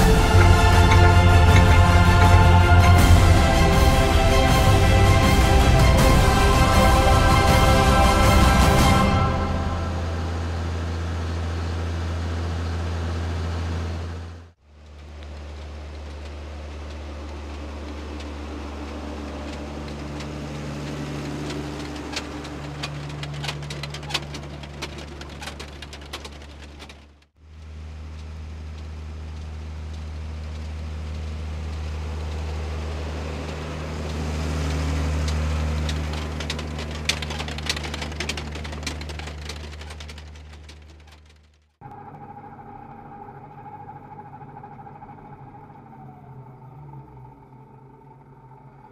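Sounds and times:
tractor diesel engine running: 0:00.0 - 0:48.9
crackling clicks: 0:14.7 - 0:32.6, 0:33.4 - 0:42.4.

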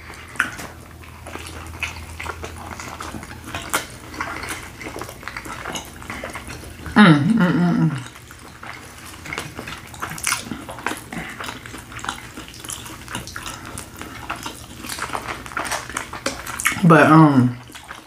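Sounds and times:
chewing and wet mouth sounds: 0:00.0 - 0:18.0
vocal sound: 0:06.8 - 0:08.2.

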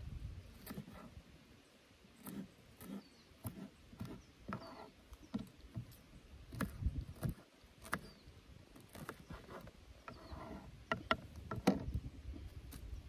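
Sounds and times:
knife cutting on wooden board: 0:00.5 - 0:01.2, 0:02.2 - 0:12.0
bird chirps: 0:02.1 - 0:06.2, 0:07.8 - 0:13.0.

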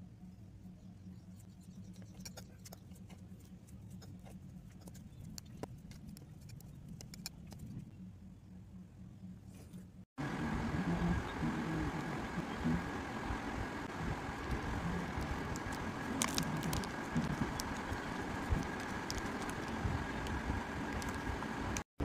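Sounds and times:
steady low hum: 0:00.0 - 0:21.9
loud noisy hum: 0:10.2 - 0:21.9.

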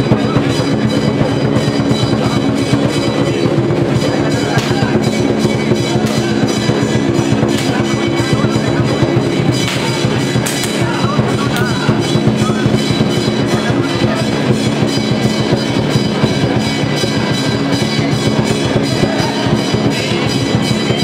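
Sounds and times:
loud fast drumming: 0:00.0 - 0:21.0
music: 0:00.0 - 0:21.0
sustained ringing din: 0:00.0 - 0:21.0.

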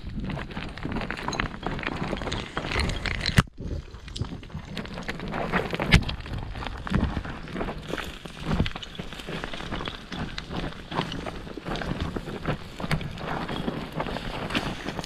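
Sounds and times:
footsteps on stony dirt trail: 0:00.0 - 0:15.0.

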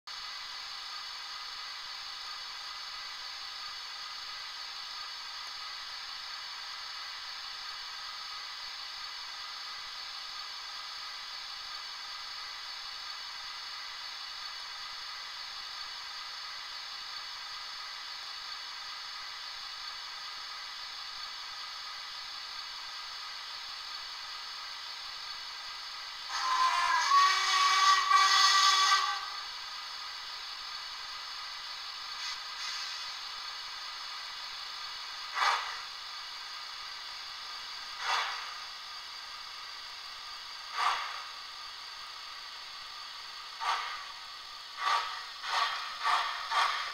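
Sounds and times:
steam hiss: 0:00.1 - 0:46.9
locomotive whistle: 0:26.3 - 0:29.5.

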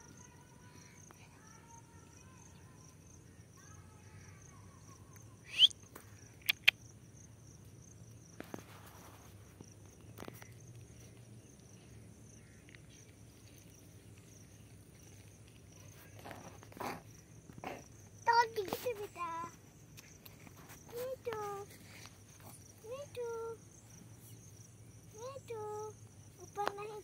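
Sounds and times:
crickets chirping: 0:00.0 - 0:27.0
sharp clicks: 0:06.4 - 0:06.8.

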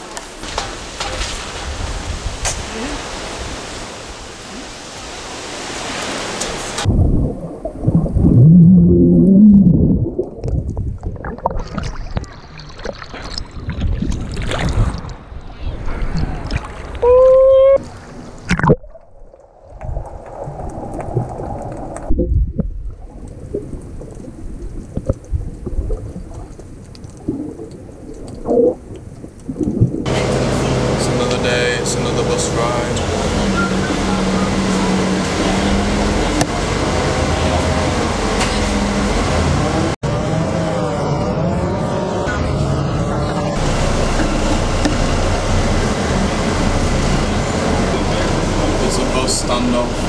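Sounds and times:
muffled splashes: 0:00.0 - 0:40.0
water sloshing and gurgling: 0:00.0 - 0:40.0, 0:42.6 - 0:50.0.

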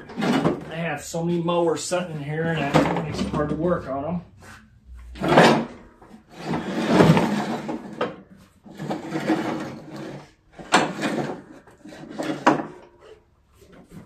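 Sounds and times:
metal deck scraping on concrete: 0:02.2 - 0:13.2.

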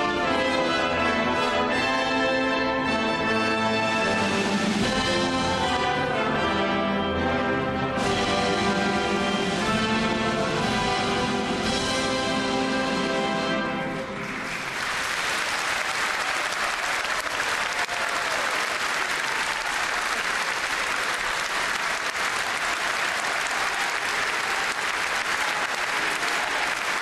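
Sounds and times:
crowd applauding: 0:14.0 - 0:27.0.

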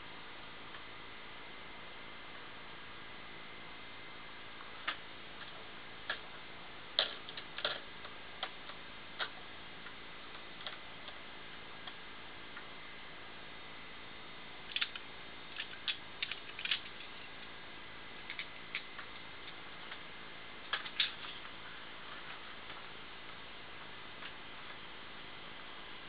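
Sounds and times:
hard drive head clicking: 0:14.7 - 0:17.1.

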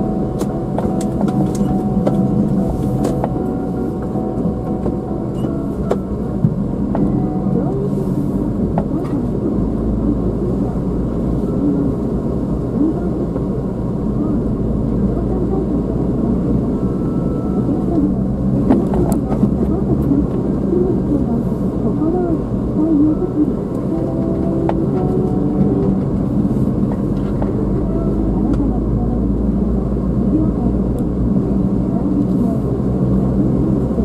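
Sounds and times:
car engine and tyre rumble: 0:00.0 - 0:34.0.

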